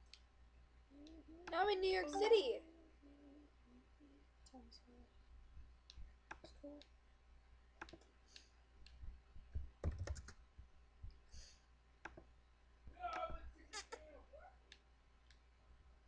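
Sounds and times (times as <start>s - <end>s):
clicks and taps on a laptop: 8.9s - 10.4s.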